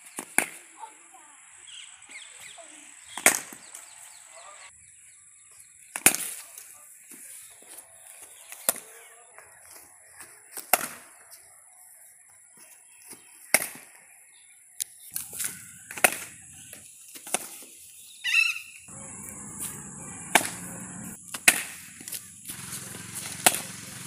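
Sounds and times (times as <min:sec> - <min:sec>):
cricket bat striking ball: 0:15.8 - 0:16.4, 0:18.9 - 0:22.2, 0:23.4 - 0:23.7.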